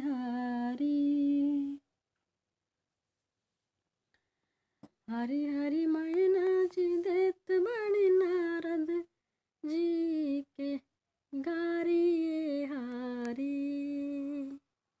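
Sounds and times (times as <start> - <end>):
woman singing folk melody: 0.0 - 1.8, 5.1 - 14.6.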